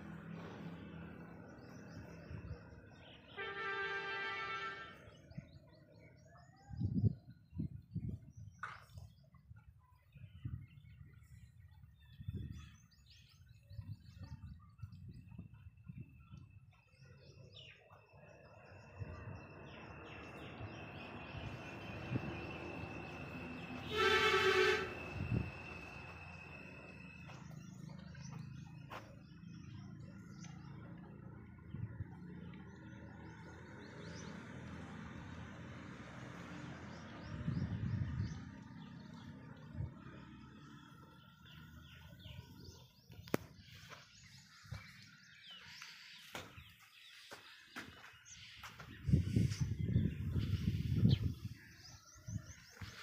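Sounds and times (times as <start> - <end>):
birds chirping: 0.0 - 35.7, 36.4 - 53.0
horn steady flat note: 3.3 - 5.0, 23.4 - 25.9
small birds chirping: 40.6 - 53.0.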